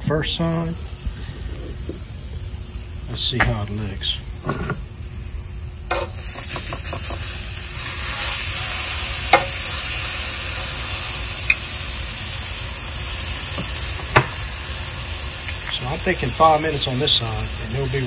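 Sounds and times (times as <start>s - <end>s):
meat sizzling on grill: 0.3s - 18.0s.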